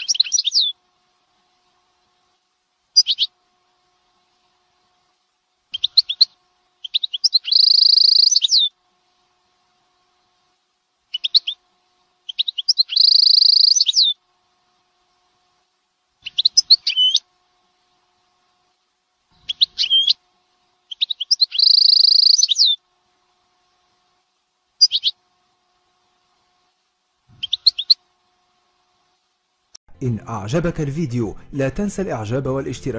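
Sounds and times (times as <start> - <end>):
songbird chirps and trills: 0.0 - 0.8, 2.9 - 3.4, 5.7 - 8.8, 11.1 - 14.2, 16.2 - 18.0, 19.4 - 22.9, 24.8 - 25.3, 27.3 - 28.1.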